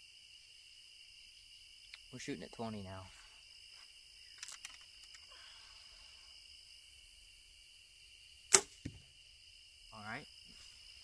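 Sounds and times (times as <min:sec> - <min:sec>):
insect chirring: 0:00.0 - 0:11.0
bow string crack: 0:04.2 - 0:05.3, 0:08.5 - 0:09.1.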